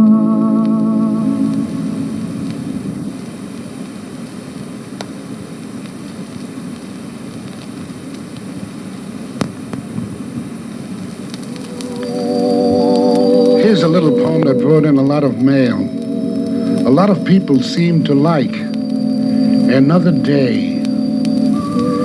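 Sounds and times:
record surface noise hiss: 0:00.0 - 0:22.0
clicks and crackles: 0:02.4 - 0:22.0
organ playing: 0:11.6 - 0:22.0.

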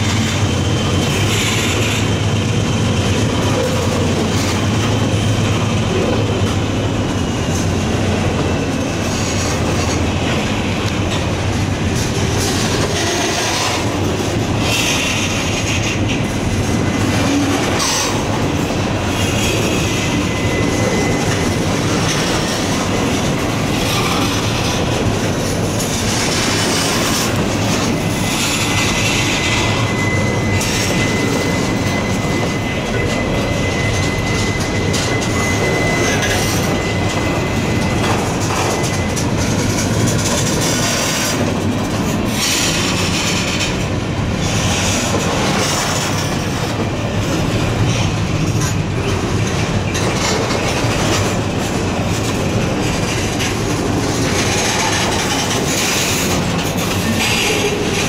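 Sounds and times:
train wheels clacking over rail joints: 0:00.0 - 0:58.0
wheel squeal: 0:16.7 - 0:24.8, 0:26.0 - 0:41.5.

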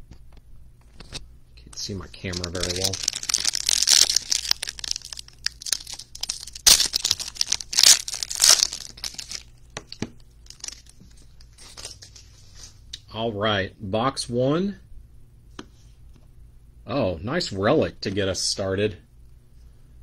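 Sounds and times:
foil wrapper tearing and crinkling: 0:02.1 - 0:11.0, 0:11.6 - 0:12.1.

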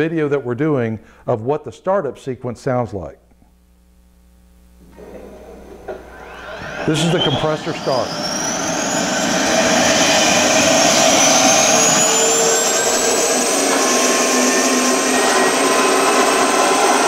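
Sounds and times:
jet turbine startup whine: 0:04.9 - 0:17.0.

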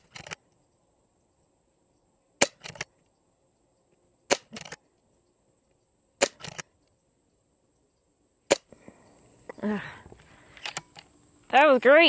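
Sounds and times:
air rifle shots: 0:02.4 - 0:02.9, 0:04.3 - 0:04.8, 0:06.2 - 0:06.6, 0:08.5 - 0:08.7.

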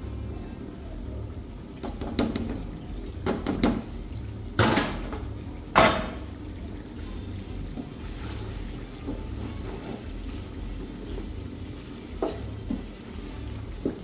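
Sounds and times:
kitchenware knocking and clattering: 0:01.8 - 0:02.6, 0:03.2 - 0:03.9, 0:04.6 - 0:06.2.

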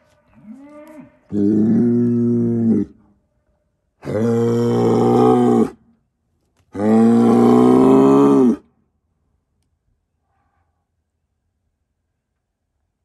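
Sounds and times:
bull bellowing: 0:04.0 - 0:05.8, 0:06.8 - 0:08.6.

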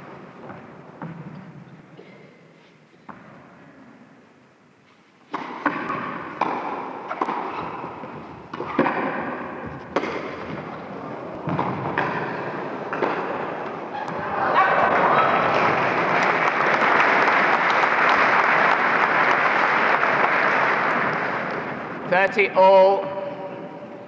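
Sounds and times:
tennis racket hitting ball: 0:05.3 - 0:14.2
crowd applauding: 0:13.6 - 0:22.1.

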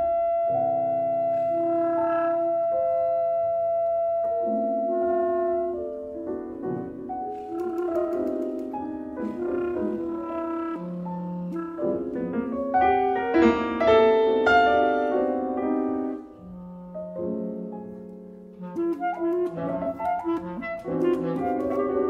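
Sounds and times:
clarinet notes: 0:00.0 - 0:22.0
piano chords: 0:00.0 - 0:22.0.

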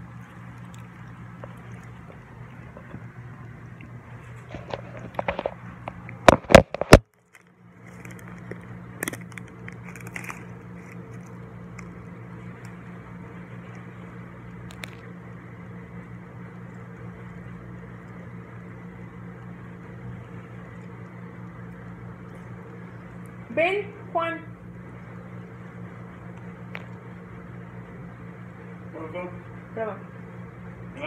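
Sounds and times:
low hum with faint hiss: 0:00.0 - 0:31.0
plastic wrapper crackling: 0:04.5 - 0:12.8, 0:14.6 - 0:15.1.

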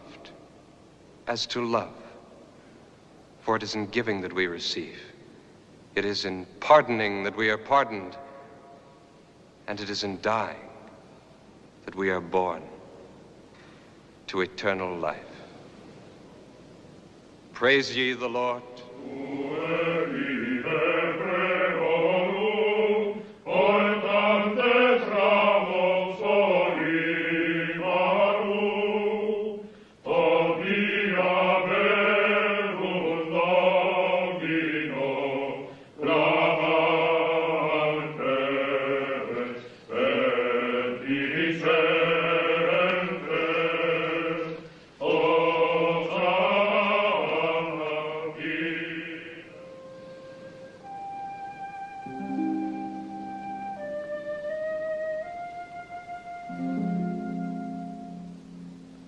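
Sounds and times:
men singing plainchant: 0:19.0 - 0:49.6.

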